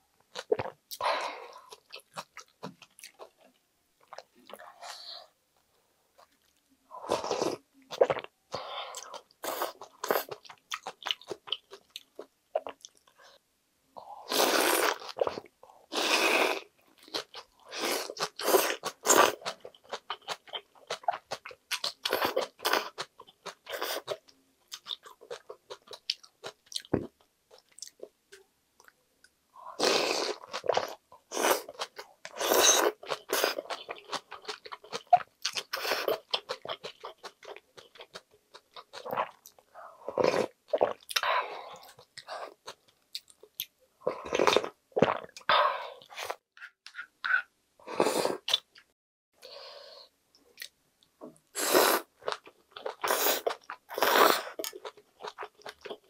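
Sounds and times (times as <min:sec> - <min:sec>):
slurping noodles and broth: 0:14.2 - 0:16.7, 0:29.8 - 0:33.7, 0:51.6 - 0:52.1, 0:52.9 - 0:54.7.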